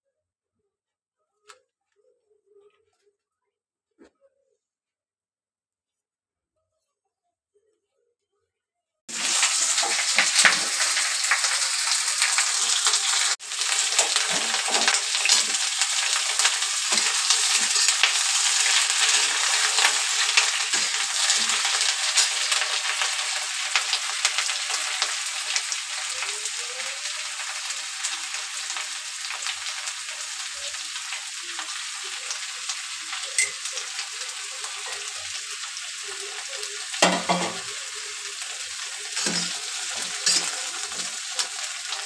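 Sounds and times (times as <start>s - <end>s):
food sizzling in hot oil: 9.1s - 42.0s
metal spatula clicking and scraping: 39.2s - 41.1s.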